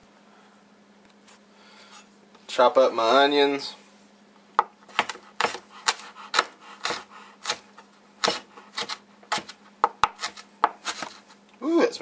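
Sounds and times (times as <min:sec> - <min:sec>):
knife chopping on plastic board: 0:04.6 - 0:11.2.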